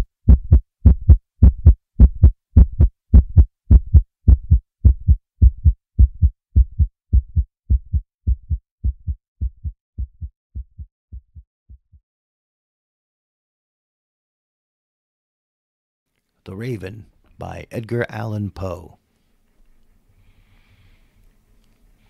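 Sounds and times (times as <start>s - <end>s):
heartbeat thumps: 0.0s - 12.0s.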